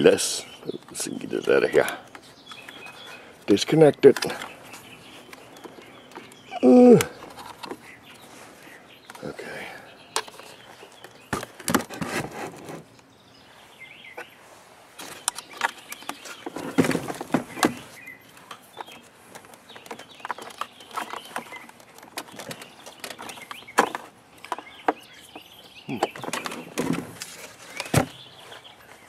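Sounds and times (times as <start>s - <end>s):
cardboard box rustling and knocks: 16.5s - 17.9s, 27.8s - 28.3s.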